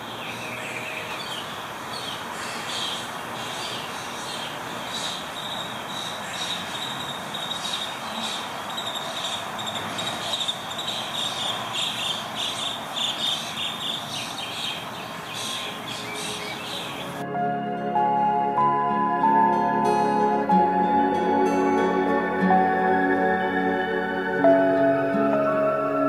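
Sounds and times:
rapid high-pitched chirping: 0:04.9 - 0:17.2
soft sustained music notes: 0:17.2 - 0:26.0.

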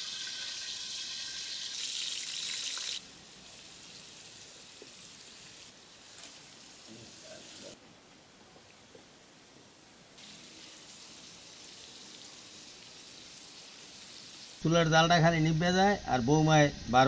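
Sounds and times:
prawns sizzling in hot oil: 0:00.0 - 0:07.8, 0:10.2 - 0:14.6.

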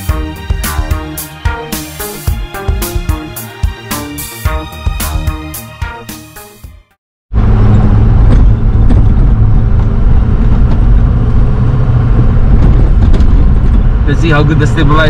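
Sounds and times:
music: 0:00.0 - 0:07.0
truck engine and tyres rumbling: 0:07.3 - 0:15.0.

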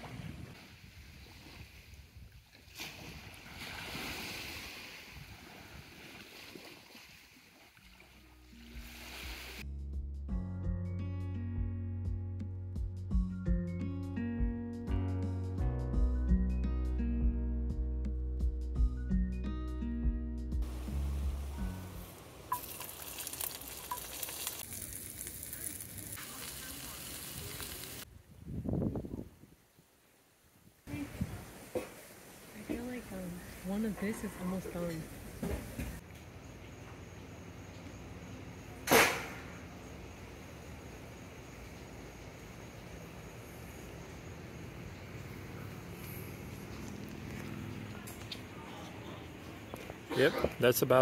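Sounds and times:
wind and water rushing: 0:00.0 - 0:09.6
food sizzling in a frying pan: 0:22.5 - 0:28.0.

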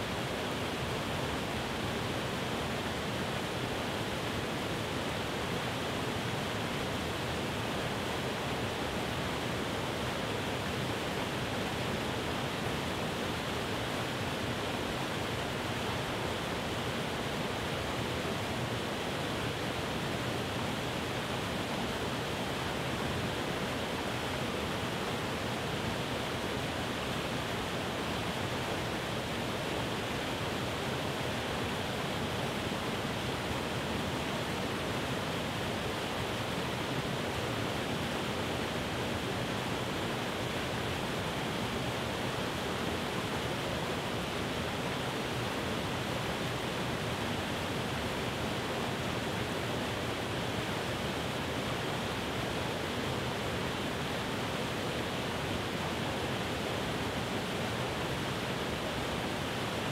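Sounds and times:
waterfall rushing over rocks: 0:00.0 - 0:59.9.

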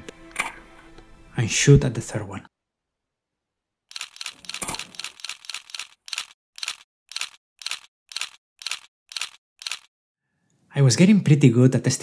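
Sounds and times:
camera shutter clicks: 0:03.9 - 0:09.9.

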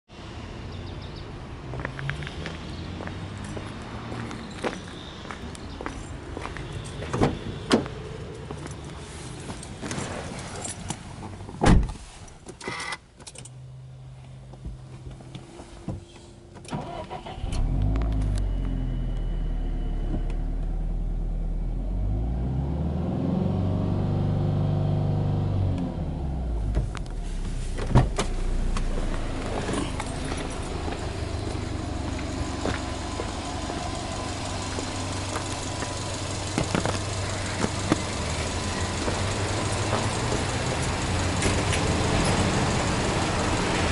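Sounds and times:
car engine starting and idling: 0:12.5 - 0:43.9.

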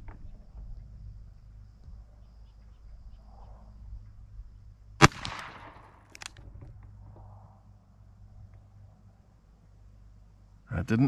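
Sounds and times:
revolver gunshot: 0:05.0 - 0:06.3.

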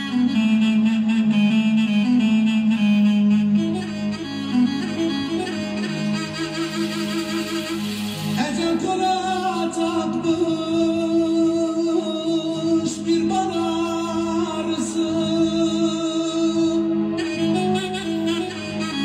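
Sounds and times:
slow song with singing: 0:08.2 - 0:19.0.

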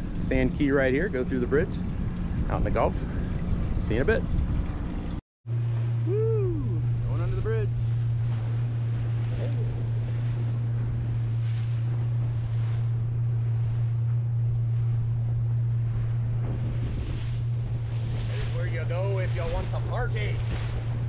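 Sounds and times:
outboard motor running: 0:00.0 - 0:21.0
water rushing past hull: 0:00.0 - 0:21.0
wind buffeting microphone: 0:00.0 - 0:21.0.

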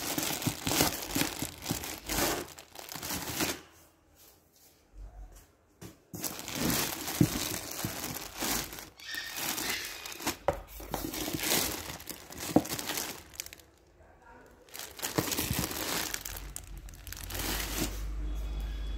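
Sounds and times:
plastic bags crinkling: 0:00.0 - 0:03.8, 0:06.2 - 0:18.2.

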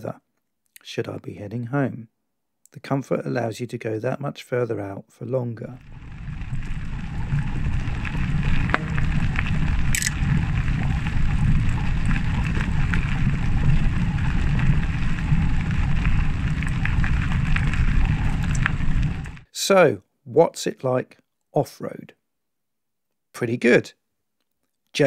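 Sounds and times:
grit ticking: 0:05.8 - 0:19.4
bike rumbling on gravel track: 0:05.8 - 0:19.5.

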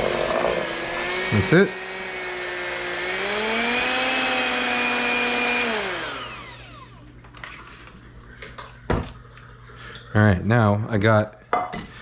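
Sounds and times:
electric hand mixer beating batter: 0:00.0 - 0:07.0.

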